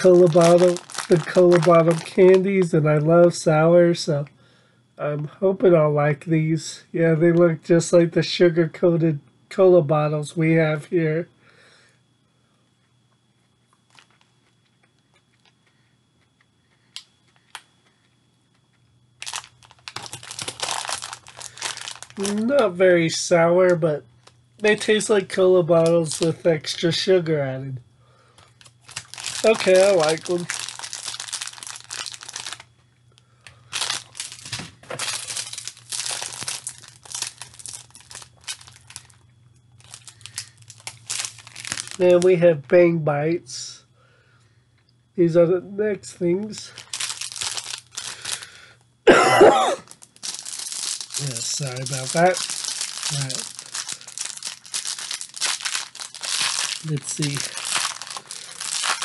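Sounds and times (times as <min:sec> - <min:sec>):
chewing gummy candies: 0:00.0 - 0:02.4, 0:13.4 - 0:22.6, 0:28.4 - 0:32.8, 0:33.4 - 0:42.0, 0:46.7 - 0:48.6, 0:49.8 - 0:59.0
plastic wrapper crackling: 0:00.0 - 0:03.4, 0:13.8 - 0:14.3, 0:19.2 - 0:26.8, 0:28.4 - 0:42.4, 0:46.4 - 0:48.6, 0:49.7 - 0:59.0
plastic packaging crinkling: 0:00.0 - 0:03.5, 0:13.7 - 0:14.6, 0:19.2 - 0:26.8, 0:28.4 - 0:42.4, 0:46.4 - 0:48.6, 0:49.4 - 0:59.0.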